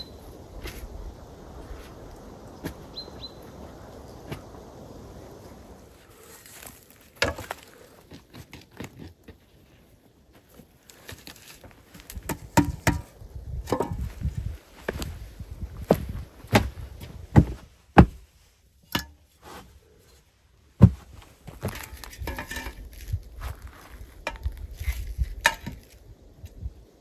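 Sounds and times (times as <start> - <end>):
wooden knocks and thuds: 15.9 - 18.2, 20.8 - 22.6
scraping: 20.8 - 26.0.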